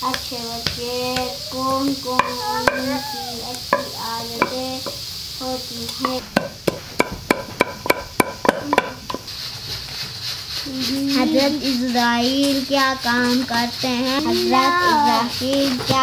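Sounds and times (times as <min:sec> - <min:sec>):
person speaking: 0:00.6 - 0:03.7, 0:13.2 - 0:15.8
wooden pestle pounding in mortar: 0:06.3 - 0:09.3.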